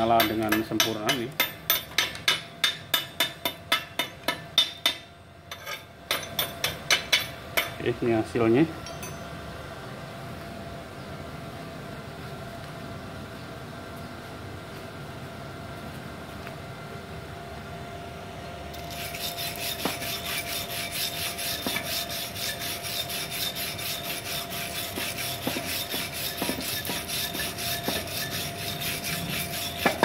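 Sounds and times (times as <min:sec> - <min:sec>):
wire brush scrubbing metal: 0:18.8 - 0:30.0
sharp knocks: 0:25.0 - 0:27.1.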